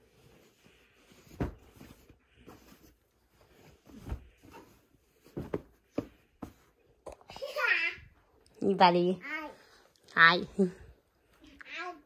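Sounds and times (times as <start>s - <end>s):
fabric rustling: 0.0s - 7.0s
soft thumps on a bed: 1.2s - 2.9s, 3.8s - 6.7s.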